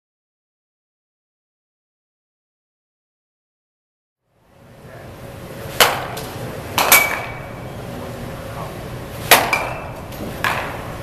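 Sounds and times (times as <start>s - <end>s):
baseball bat hitting balls: 5.7s - 7.6s, 9.2s - 11.0s.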